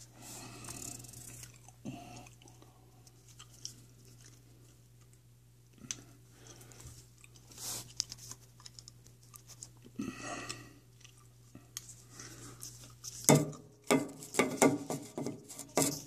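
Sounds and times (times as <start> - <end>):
faint low hum: 0.0 - 16.0.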